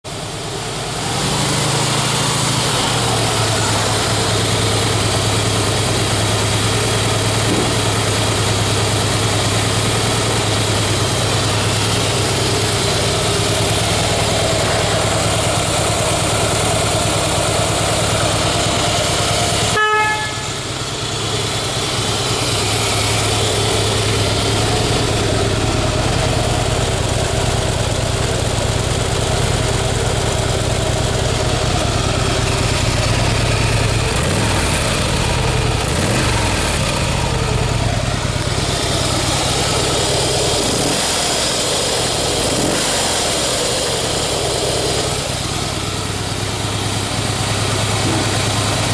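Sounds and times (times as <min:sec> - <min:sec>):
motorcycle engine idling: 0:00.0 - 0:48.9
motorcycle horn beep: 0:19.5 - 0:21.1.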